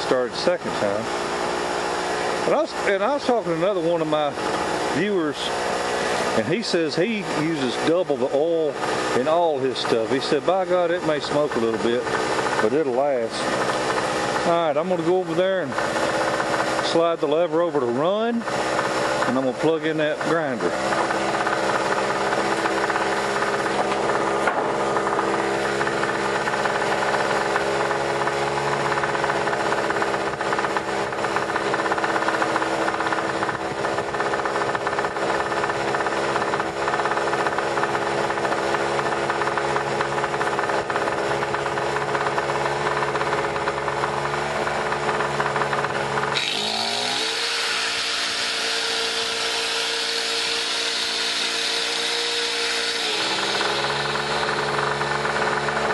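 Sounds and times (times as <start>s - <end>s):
generator engine running: 0.0s - 55.9s
grinder whine: 0.0s - 55.9s.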